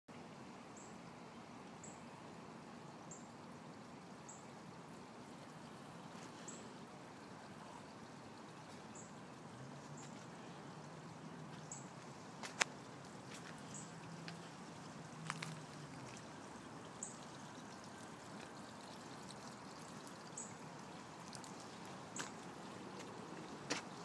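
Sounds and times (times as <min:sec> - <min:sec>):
creek water flowing: 0:00.1 - 0:24.0.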